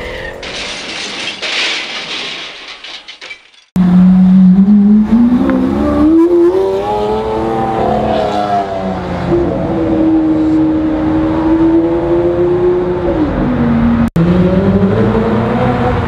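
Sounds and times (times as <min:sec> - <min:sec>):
sports car engine accelerating: 0:03.8 - 0:16.0.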